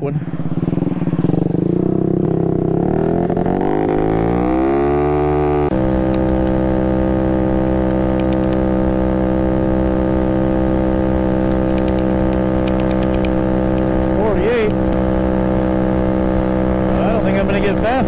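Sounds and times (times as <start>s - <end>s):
wind rushing: 0.0s - 3.2s
scooter engine at full throttle: 0.3s - 18.0s.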